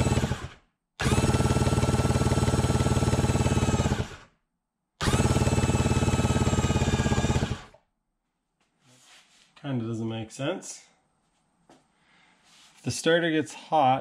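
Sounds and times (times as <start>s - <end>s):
engine cranking on starter: 0.0s - 4.3s, 5.0s - 7.7s.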